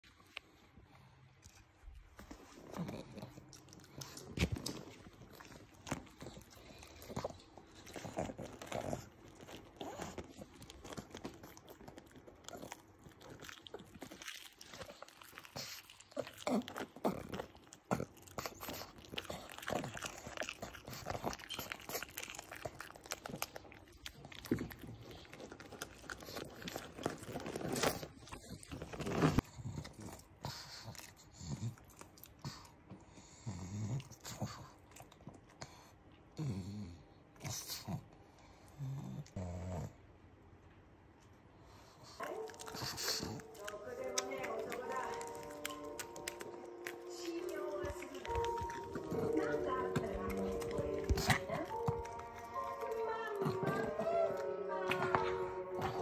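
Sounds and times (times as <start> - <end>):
dog chewing food: 0.5 - 35.9, 41.7 - 56.0.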